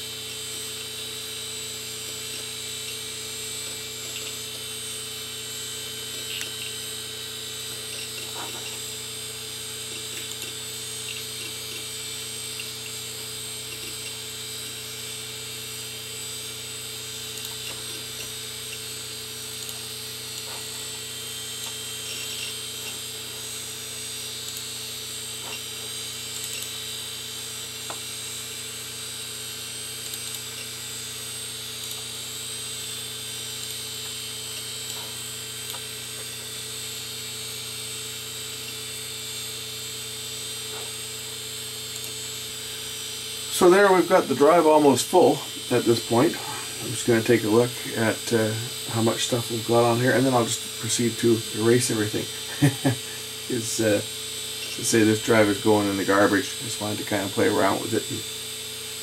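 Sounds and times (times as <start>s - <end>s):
hard drive hum and whine: 0.0s - 59.0s
hard drive head ticking: 1.9s - 16.1s, 17.2s - 26.8s.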